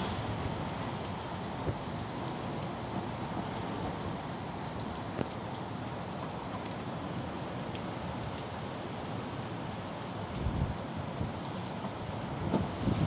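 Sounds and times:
heavy rain pouring: 0:00.0 - 0:13.0.

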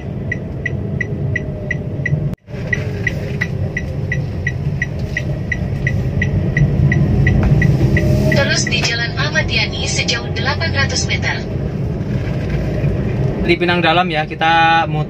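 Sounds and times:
turn signal ticking: 0:00.0 - 0:12.0
engine and road hum in car: 0:00.0 - 0:15.0.

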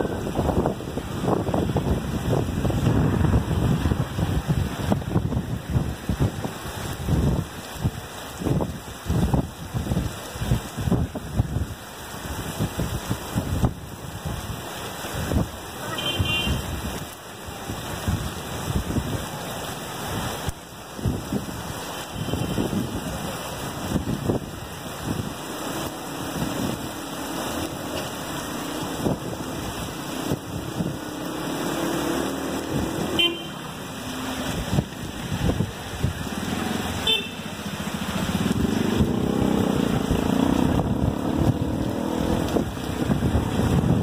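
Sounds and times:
wind buffeting microphone: 0:00.0 - 0:15.6, 0:20.1 - 0:44.0
cars passing through water: 0:00.0 - 0:44.0
heavy rain: 0:00.0 - 0:44.0
car horn toots: 0:33.2 - 0:33.6, 0:37.0 - 0:37.4.

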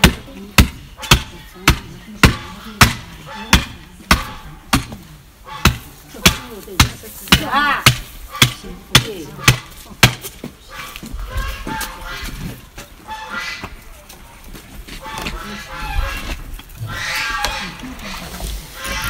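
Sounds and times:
cleaver chopping carcass: 0:00.0 - 0:05.0, 0:05.6 - 0:10.4.

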